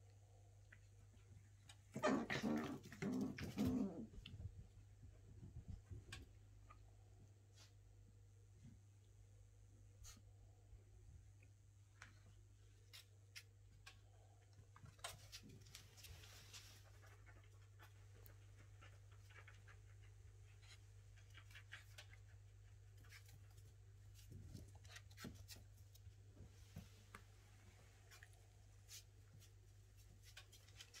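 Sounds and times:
puppy claws scuffling on towel: 0:15.1 - 0:19.8.

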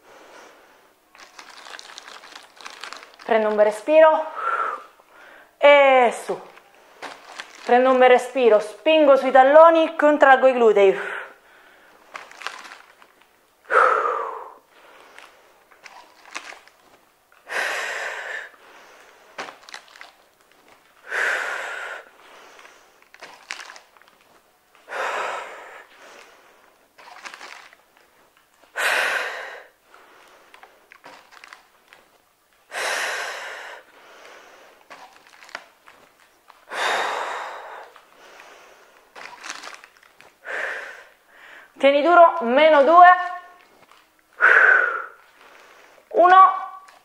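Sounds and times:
woman breathing out forcefully: 0:04.3 - 0:05.6, 0:13.6 - 0:15.6, 0:17.4 - 0:19.6, 0:21.0 - 0:23.0, 0:24.8 - 0:26.7, 0:28.7 - 0:30.6, 0:32.7 - 0:34.8, 0:36.7 - 0:39.3, 0:40.4 - 0:41.8, 0:44.4 - 0:46.1.

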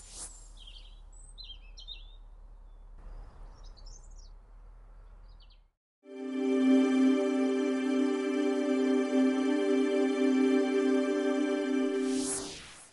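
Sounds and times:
birds chirping: 0:00.5 - 0:05.7
soft music with held tones: 0:06.0 - 0:12.3.

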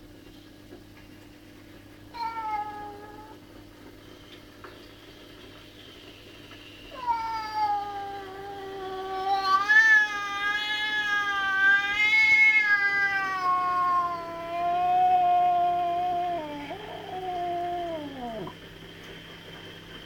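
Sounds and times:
cat yowling: 0:02.2 - 0:03.4, 0:07.0 - 0:18.5.

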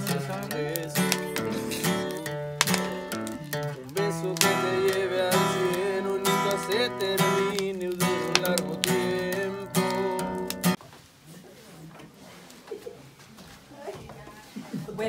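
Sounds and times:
acoustic guitar strumming: 0:00.0 - 0:10.8.

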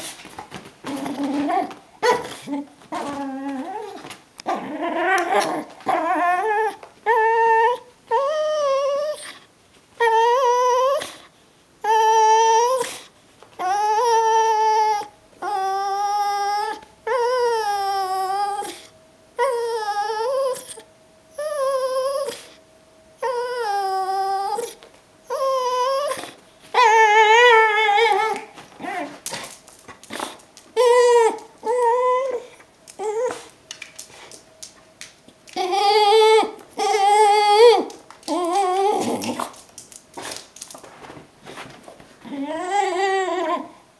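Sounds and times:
dog whining and whimpering: 0:00.0 - 0:22.6, 0:23.2 - 0:34.3, 0:35.4 - 0:43.9
dog yelping: 0:00.9 - 0:09.3, 0:23.2 - 0:29.5, 0:30.1 - 0:33.5, 0:35.5 - 0:39.6.

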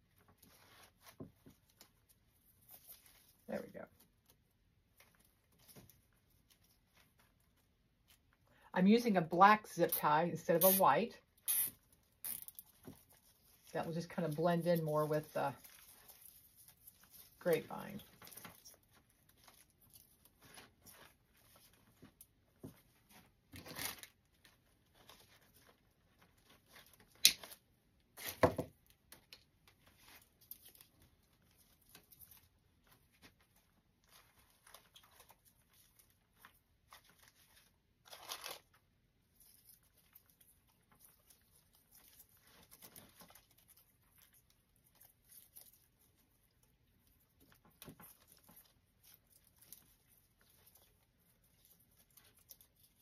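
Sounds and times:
artificial stems rustling and crinkling: 0:00.0 - 0:53.0
snaps and knocks: 0:27.1 - 0:27.6.

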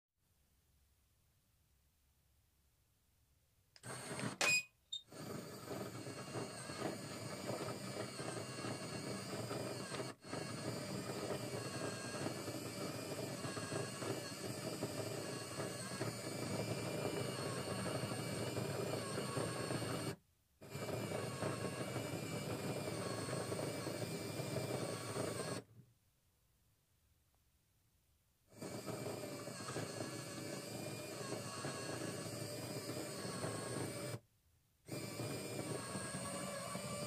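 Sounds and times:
small electric motor whirring: 0:05.0 - 0:25.7, 0:28.5 - 0:34.2, 0:34.9 - 0:37.0.

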